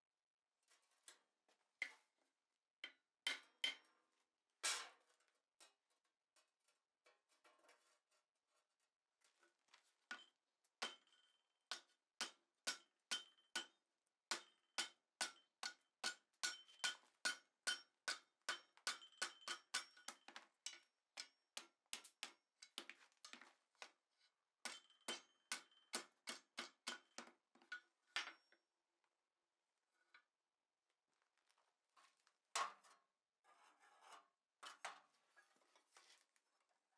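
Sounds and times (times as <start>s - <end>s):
hammer striking hot steel on anvil: 10.8s - 21.4s, 24.6s - 27.1s.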